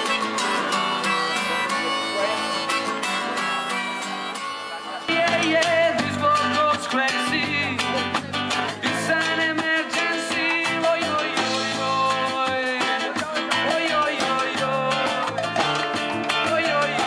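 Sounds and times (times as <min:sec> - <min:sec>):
strummed acoustic guitar: 0:00.0 - 0:17.0
man singing into a microphone: 0:05.1 - 0:17.0.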